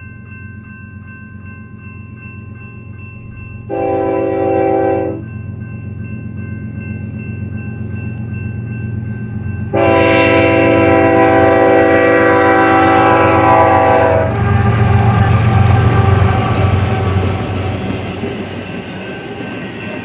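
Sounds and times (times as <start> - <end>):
train wheels passing: 2.4 - 20.0
locomotive air horn blast: 3.7 - 5.2, 9.7 - 17.2.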